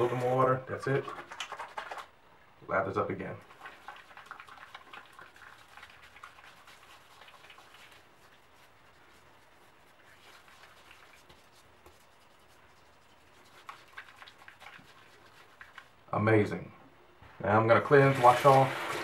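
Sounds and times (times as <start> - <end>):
hands squishing foamy lather: 0.0 - 2.1, 3.4 - 16.0.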